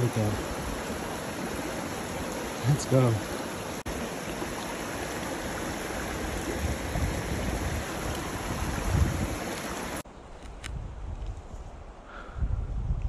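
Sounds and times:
creek water running: 0:00.0 - 0:10.1.

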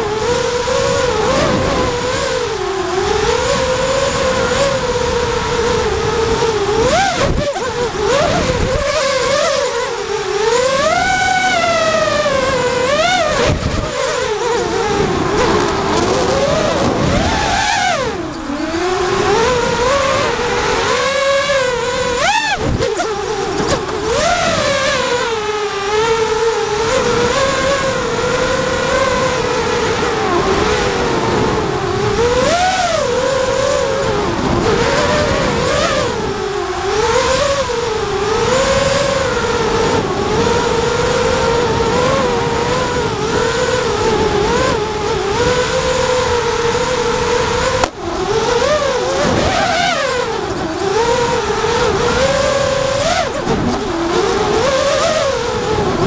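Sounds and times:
quadcopter motors whining: 0:00.0 - 0:56.0.

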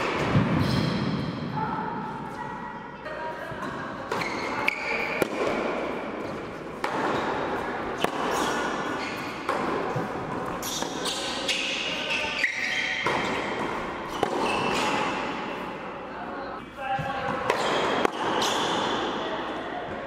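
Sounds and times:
tennis racket strikes: 0:04.1 - 0:12.0.

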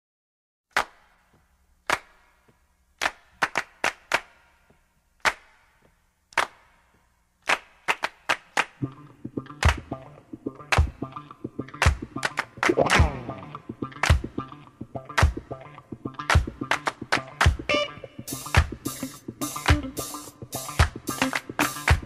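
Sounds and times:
low bass line music: 0:08.8 - 0:22.0
sharp echoing percussive hits: 0:11.7 - 0:15.6.

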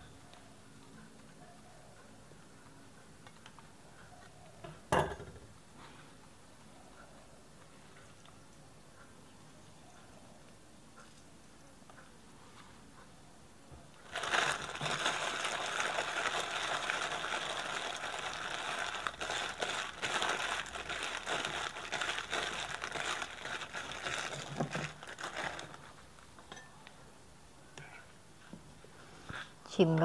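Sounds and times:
plastic bag crinkling: 0:14.0 - 0:26.2.

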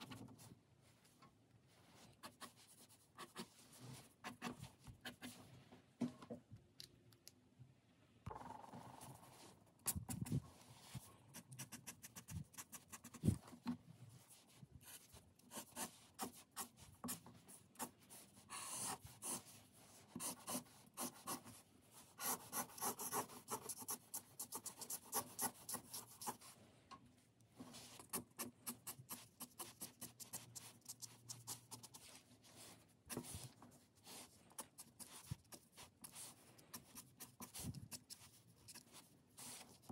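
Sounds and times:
marker scratching on paper: 0:17.8 - 0:26.5, 0:27.7 - 0:39.9.

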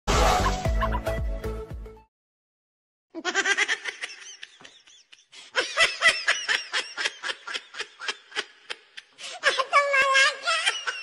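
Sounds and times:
music intro: 0:00.1 - 0:02.1
person laughing hard: 0:00.4 - 0:01.2, 0:03.2 - 0:09.6.

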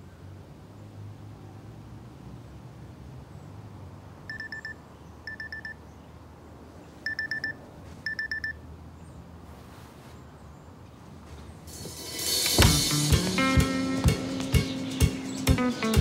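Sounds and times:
smartwatch alarm beeps: 0:04.3 - 0:05.8, 0:07.0 - 0:08.6.

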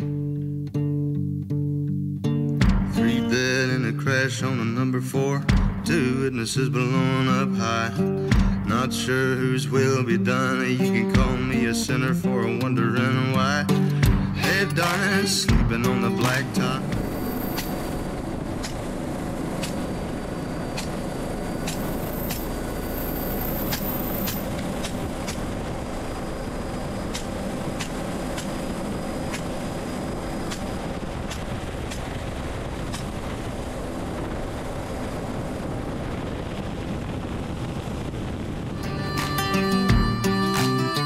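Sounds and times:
helicopter engine and rotor: 0:16.2 - 0:37.1.

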